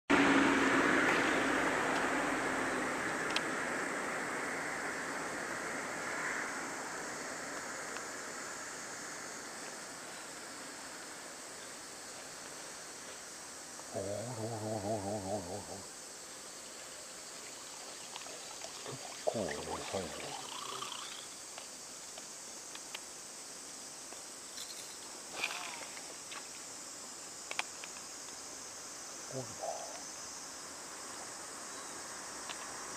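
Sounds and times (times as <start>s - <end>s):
insects droning: 0.1s - 32.9s
faint click: 3.2s - 3.5s.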